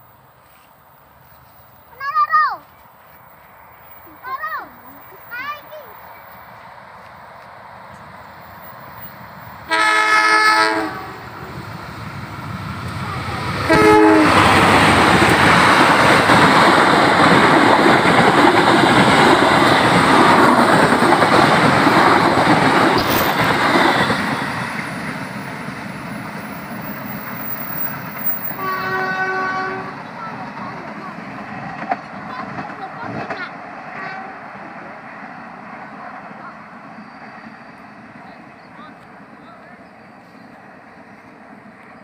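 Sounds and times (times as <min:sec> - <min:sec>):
train wheels rushing on rails: 0:00.0 - 0:42.0
train horn blast: 0:09.6 - 0:11.3, 0:13.6 - 0:14.6, 0:28.5 - 0:30.1, 0:34.0 - 0:34.5.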